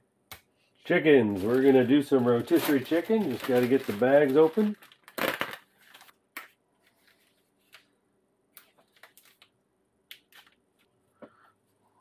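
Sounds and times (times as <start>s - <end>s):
plastic film crinkling: 0.9s - 6.2s, 8.6s - 9.5s
knife ripping plastic bag: 1.3s - 6.1s.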